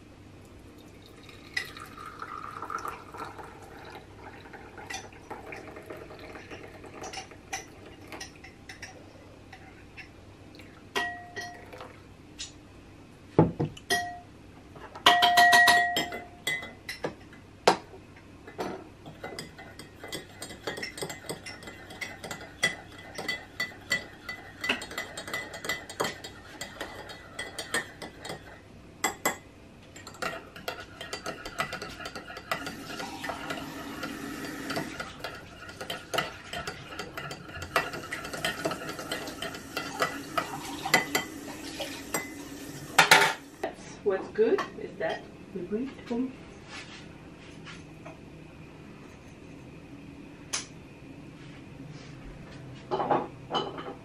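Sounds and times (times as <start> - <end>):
teaspoon clinking in mug: 1.2 - 3.3.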